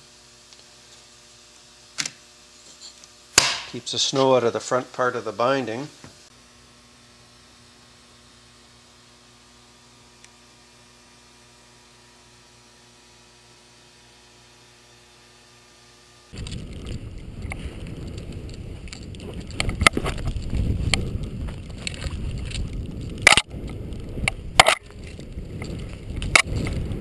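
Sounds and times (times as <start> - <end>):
faint electrical hum: 0.0 - 27.0
wind buffeting microphone: 16.4 - 27.0
skis sliding over snow: 16.6 - 23.1.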